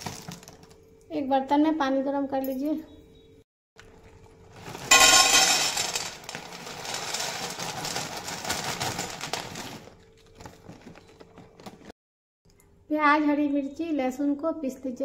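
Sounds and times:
dry pasta clattering on metal: 4.8s - 9.9s.

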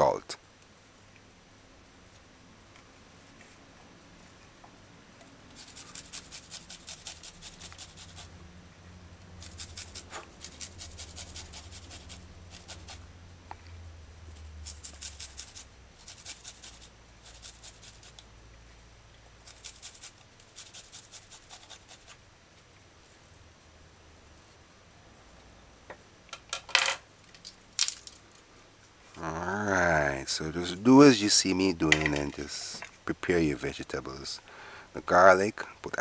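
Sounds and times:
garlic scraping on metal grater: 5.6s - 8.3s, 9.4s - 13.0s, 14.6s - 18.2s, 19.4s - 22.2s.

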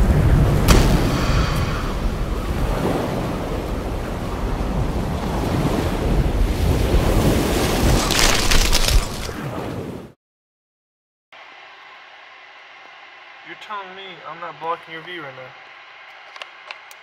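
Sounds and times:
ocean surf: 0.0s - 10.0s
rushing wind: 0.0s - 10.0s.

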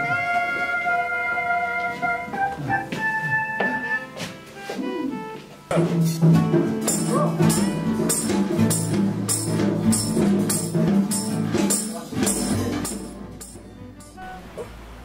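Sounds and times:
cymbal and drum strokes: 5.7s - 15.0s.

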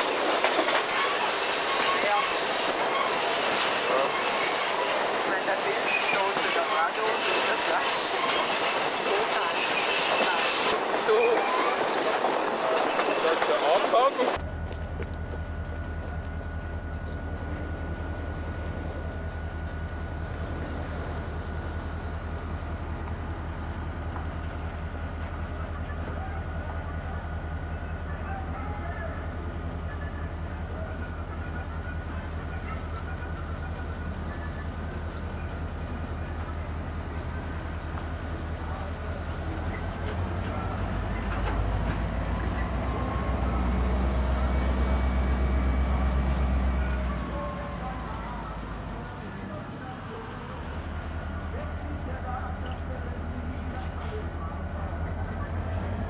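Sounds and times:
locomotive engine rumble: 0.0s - 56.0s
engine high whine: 14.0s - 56.0s.

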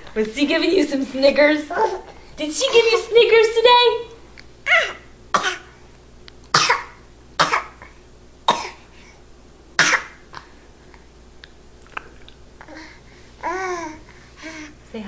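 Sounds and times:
person coughing: 8.5s - 8.8s.

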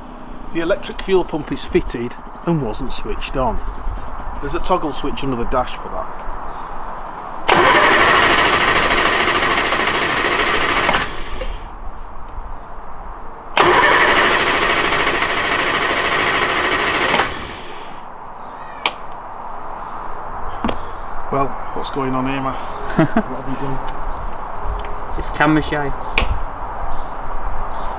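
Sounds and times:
car engine cranking on starter: 7.5s - 11.6s, 13.6s - 18.0s
sharp click: 26.1s - 26.4s.

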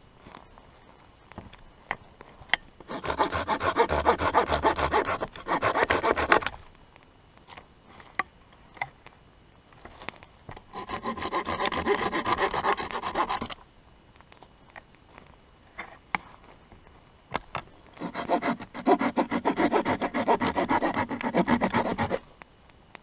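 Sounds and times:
hand saw cutting wood: 2.9s - 6.5s, 10.7s - 13.6s, 18.0s - 22.2s.

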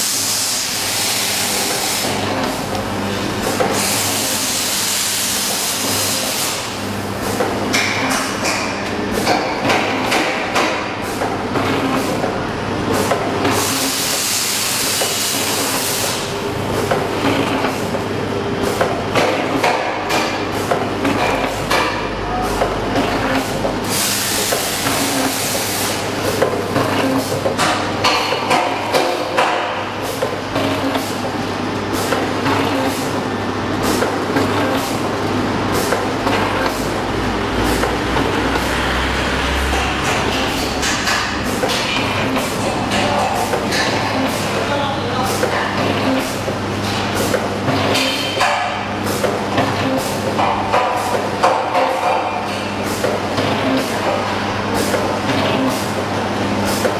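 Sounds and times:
machine hissing: 0.0s - 7.3s, 13.0s - 16.4s, 23.4s - 27.3s
machine hum and hiss: 0.0s - 56.9s.

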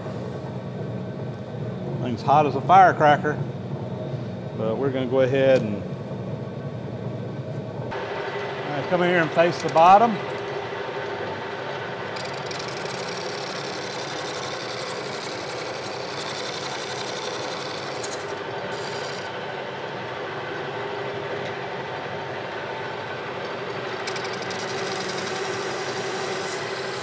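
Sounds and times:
lathe drive humming: 7.9s - 27.0s
scratchy metal cutting: 12.2s - 19.3s, 24.0s - 27.0s.

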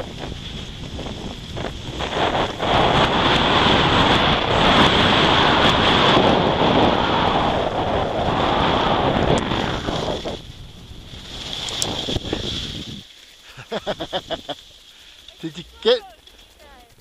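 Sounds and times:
wind buffeting microphone: 0.0s - 13.1s
skis hissing over snow: 0.0s - 16.9s.

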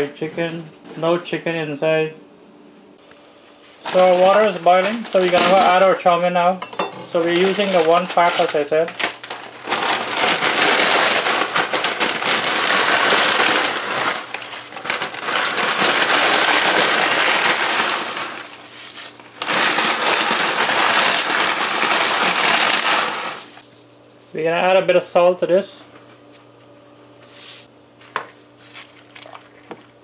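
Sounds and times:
plastic packet crinkling: 3.8s - 6.2s, 7.1s - 23.6s, 28.1s - 30.0s.

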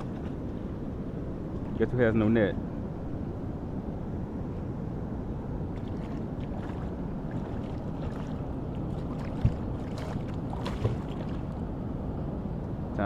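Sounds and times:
wind: 0.0s - 13.0s
river water rushing: 5.7s - 11.8s
fish splashing at the surface: 5.8s - 11.5s.

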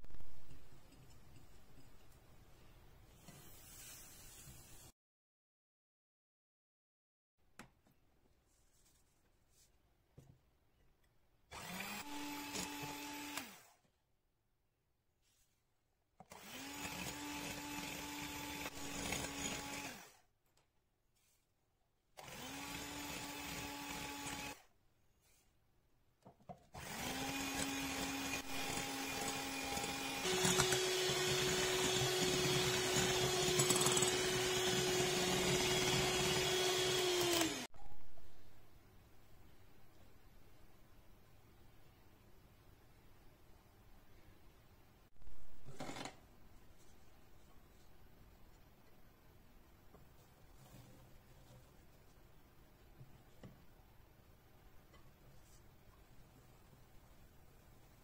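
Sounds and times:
electric hand mixer whirring: 11.6s - 13.6s, 16.4s - 20.1s, 22.2s - 24.6s, 26.8s - 37.7s.

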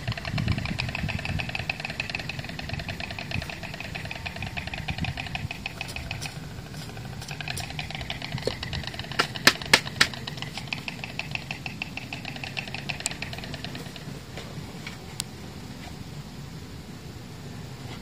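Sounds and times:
engine running with ticking: 0.0s - 15.3s
hand trowel clicking: 5.6s - 10.9s.

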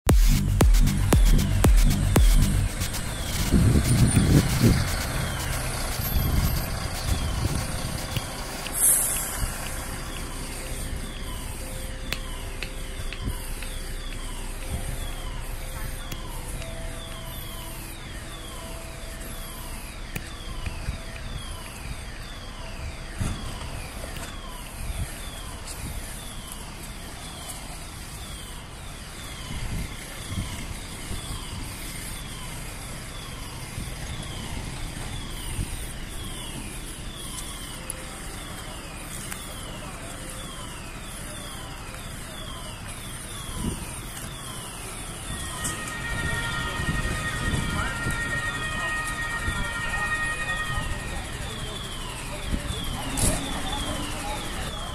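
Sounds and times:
steady low rumble: 0.1s - 22.1s
fire alarm sweeping tone: 0.1s - 54.9s
people talking: 0.2s - 21.8s, 37.3s - 54.9s.

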